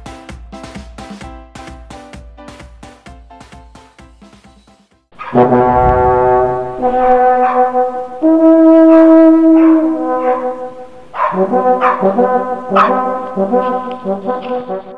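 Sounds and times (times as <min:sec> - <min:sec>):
brass fanfare: 0:05.2 - 0:10.7, 0:11.4 - 0:14.9
sweeping swishes: 0:05.5 - 0:07.4.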